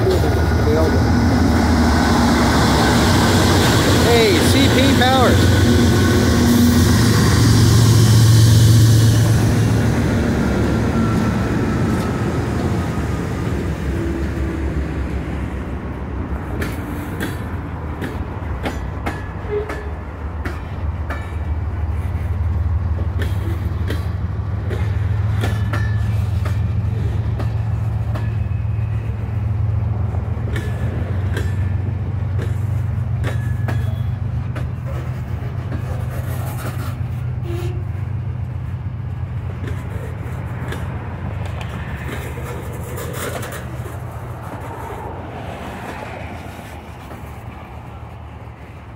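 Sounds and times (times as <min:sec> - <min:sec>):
train wheels clicking on joints: 0:00.0 - 0:12.8, 0:15.9 - 0:48.9
deeper engine rumble: 0:00.0 - 0:16.5
diesel locomotives rumbling: 0:00.0 - 0:48.9.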